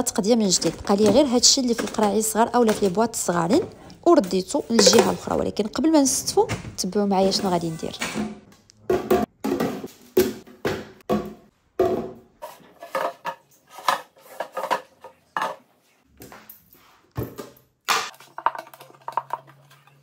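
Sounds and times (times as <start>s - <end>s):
plastic containers knocking on stone: 0.5s - 3.8s.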